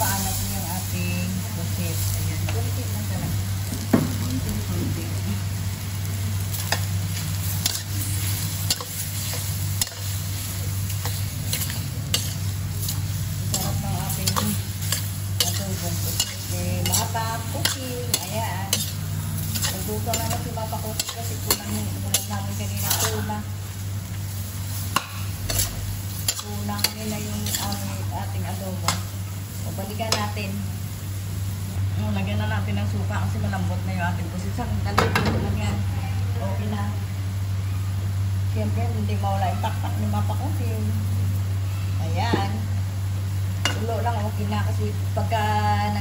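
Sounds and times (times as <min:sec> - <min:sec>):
squid sizzling in a pan: 0:00.0 - 0:34.6, 0:36.2 - 0:46.0
metal utensil scraping a pan: 0:07.6 - 0:10.2, 0:10.9 - 0:23.4.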